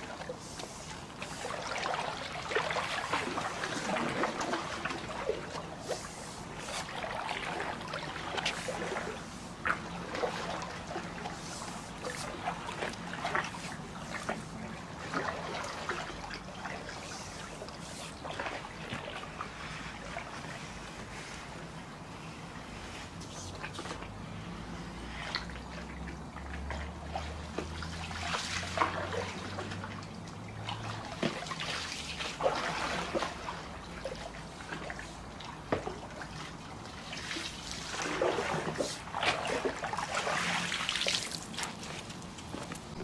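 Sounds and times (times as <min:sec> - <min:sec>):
water swishing and trickling: 0:00.0 - 0:43.0.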